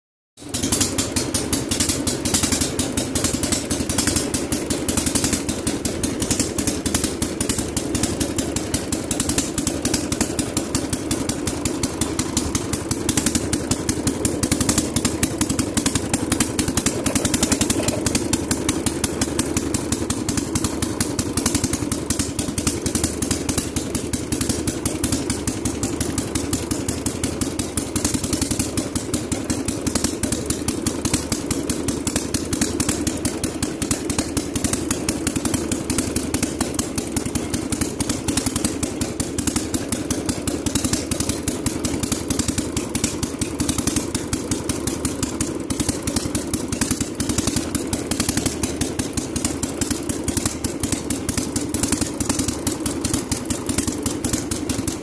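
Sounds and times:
garden tractor engine running: 0:00.4 - 0:55.0.

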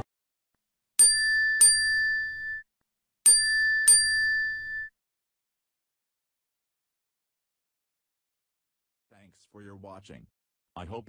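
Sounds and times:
bell-like double ding: 0:01.0 - 0:02.6, 0:03.3 - 0:04.9.

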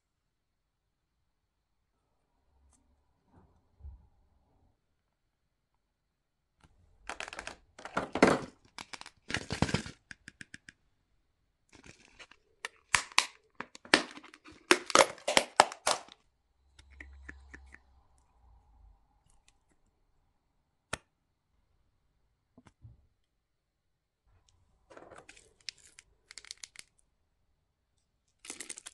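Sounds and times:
wrapper crinkling and tearing: 0:11.8 - 0:16.2, 0:25.3 - 0:26.9, 0:28.4 - 0:28.9.

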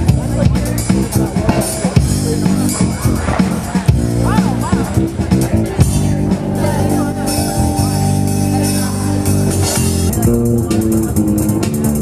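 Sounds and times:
electric bass low notes: 0:00.0 - 0:12.0.

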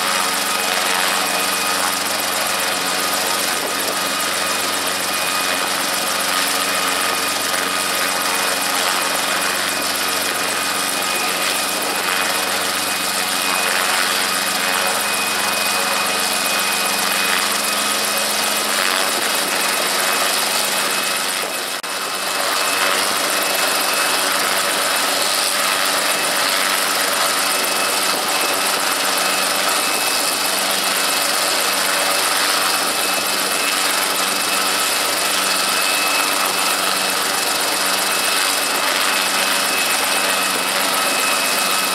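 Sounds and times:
helicopter engine running: 0:00.0 - 0:41.9.

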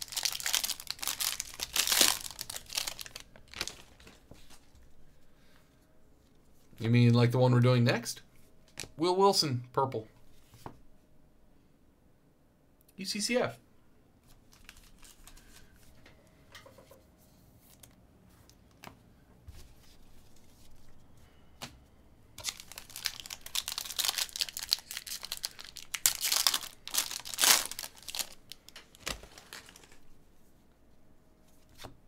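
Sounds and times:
wrapper tearing and crinkling: 0:00.0 - 0:04.2, 0:14.5 - 0:15.5, 0:22.4 - 0:30.1
cards being handled: 0:31.5 - 0:32.0.

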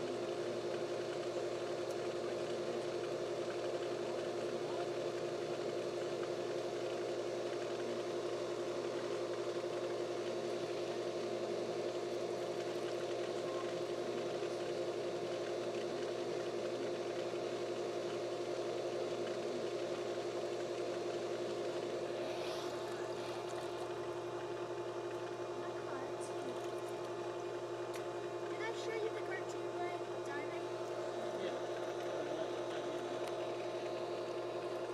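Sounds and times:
machine humming: 0:00.0 - 0:34.9.

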